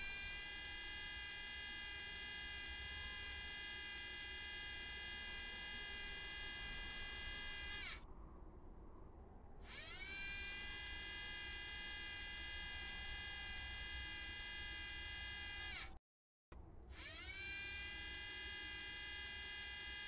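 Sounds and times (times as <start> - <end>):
servo motor whine: 0.0 - 8.0, 9.6 - 16.0, 16.9 - 20.0
faint hum: 2.0 - 14.7.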